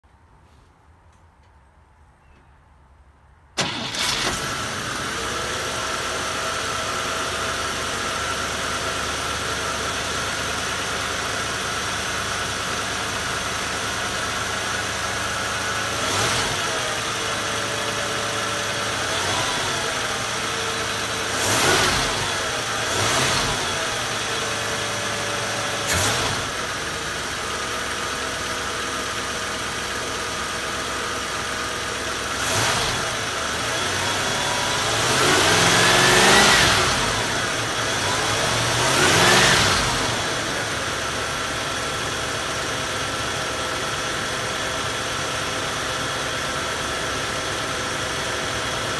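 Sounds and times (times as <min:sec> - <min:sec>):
car engine starting and idling: 0:03.5 - 0:48.9
engine revving: 0:15.6 - 0:27.1, 0:32.2 - 0:41.6.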